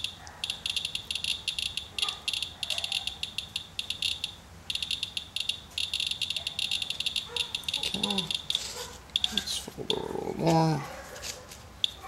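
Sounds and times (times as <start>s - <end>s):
geiger counter clicking rapidly: 0.0s - 8.6s, 9.2s - 10.1s.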